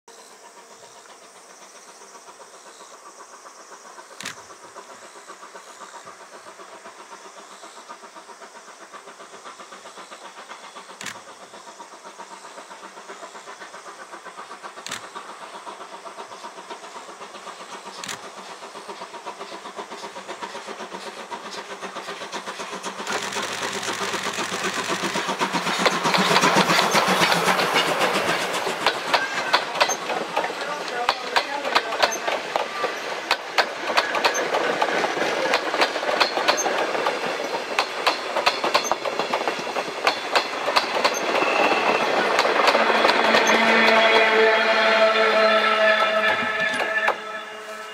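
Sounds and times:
steam locomotive passing: 0.1 - 47.9
wheels clattering over rails: 21.6 - 44.0.

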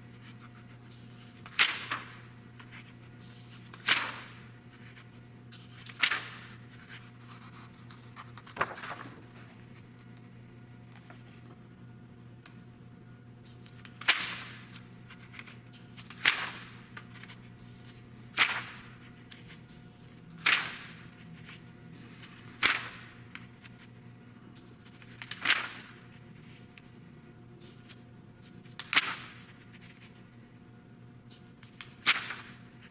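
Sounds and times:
magazine pages turning: 0.1 - 10.3, 10.9 - 11.5, 13.4 - 24.0, 24.6 - 27.0, 31.3 - 32.9.

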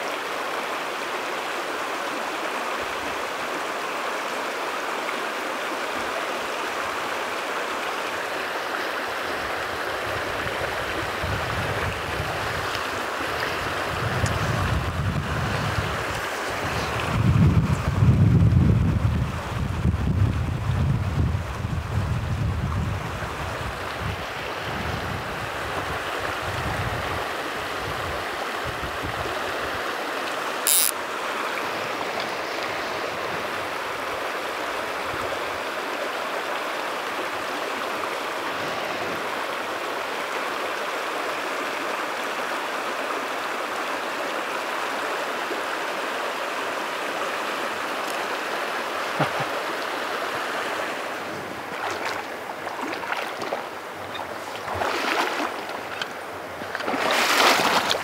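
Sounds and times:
river rushing over rocks: 0.0 - 17.2, 25.4 - 58.0
wind buffeting microphone: 10.1 - 12.8, 13.4 - 27.2
sharp click: 30.7 - 31.0.

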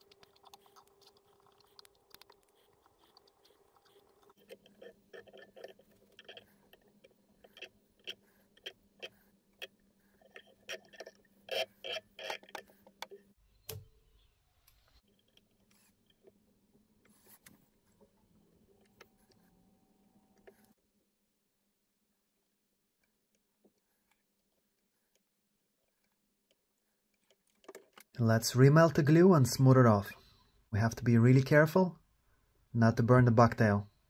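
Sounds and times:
thread ticking and scratching: 0.0 - 13.4, 22.1 - 28.1.

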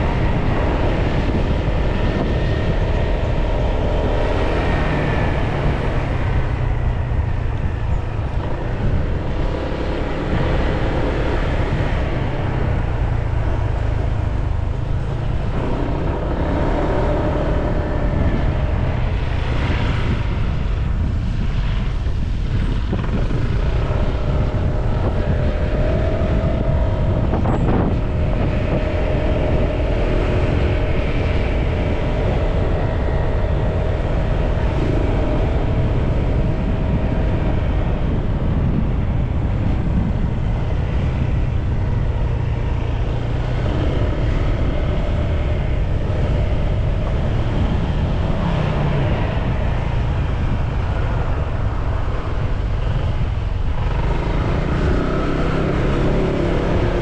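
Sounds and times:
wind noise on microphone: 0.0 - 57.0.

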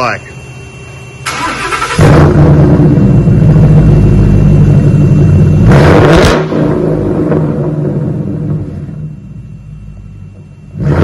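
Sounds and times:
car engine starting and idling: 1.2 - 9.0
engine throttle blip: 1.2 - 11.0.

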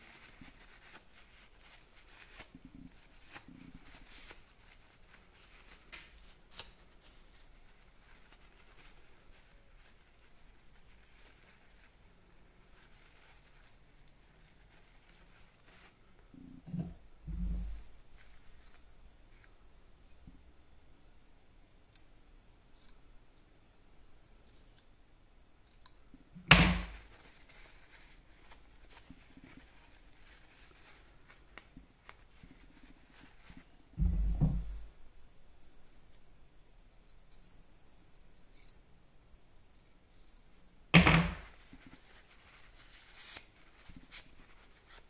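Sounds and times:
small clicks and rubs: 0.0 - 12.0, 27.0 - 33.7, 41.4 - 45.0.

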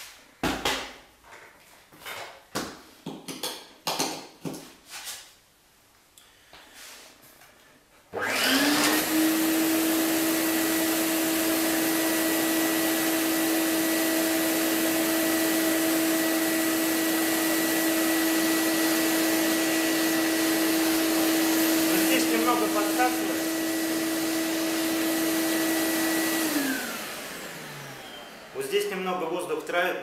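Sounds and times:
vacuum cleaner motor running: 8.1 - 29.3.

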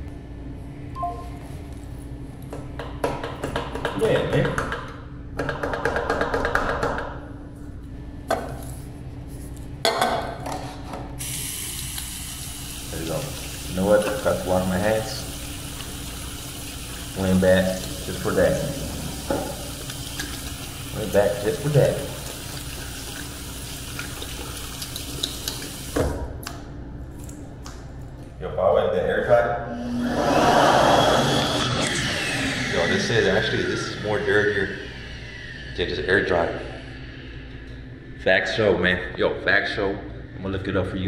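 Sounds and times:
faucet water running into sink: 11.2 - 26.1.

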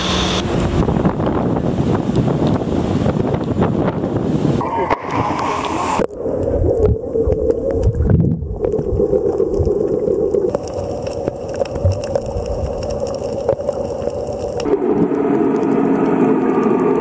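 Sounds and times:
muffled underwater hum: 4.6 - 17.0.

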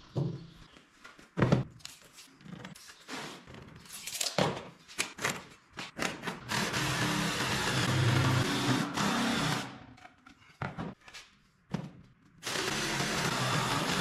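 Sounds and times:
jigsaw cutting board: 12.5 - 14.0.

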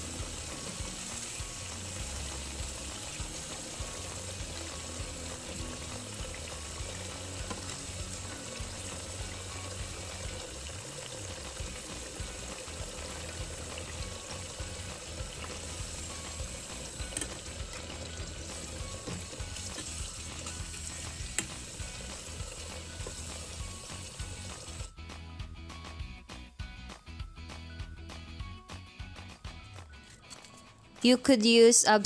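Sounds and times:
food sizzling in oil: 0.0 - 24.9
background music with bass: 0.0 - 31.0.

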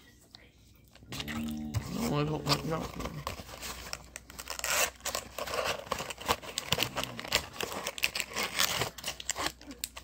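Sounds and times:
plastic wrappers crinkling: 1.2 - 10.0.

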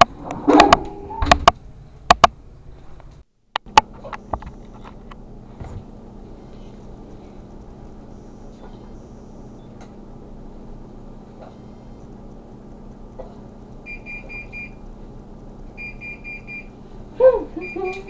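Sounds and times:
faint steady hum: 0.0 - 18.0
oven timer beeping: 13.8 - 14.8, 15.7 - 16.8, 17.6 - 18.0.

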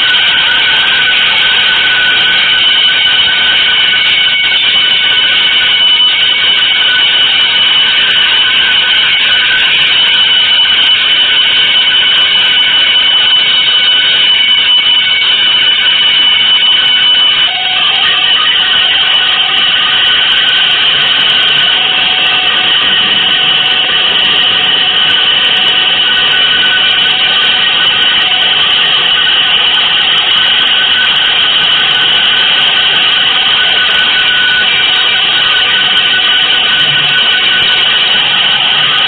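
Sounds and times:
harsh noise music: 0.0 - 39.0.

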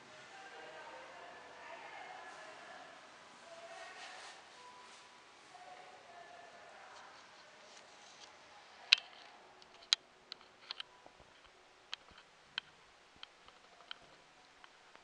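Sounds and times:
faint background hush: 0.0 - 15.0
light clicks and taps: 7.0 - 15.0.

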